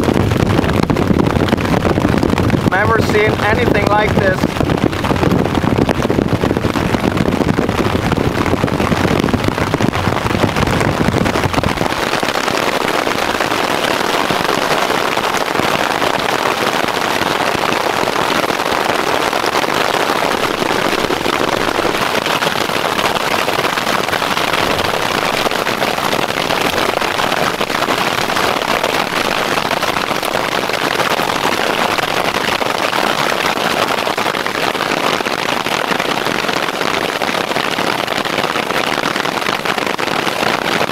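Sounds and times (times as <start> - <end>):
low rumble: 0.0 - 15.4, 17.9 - 32.7
hail and rain on tarp: 0.0 - 40.9.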